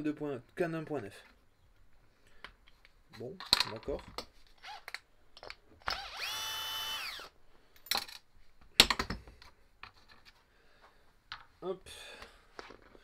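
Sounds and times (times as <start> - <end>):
cordless screwdriver whine: 5.8 - 7.3.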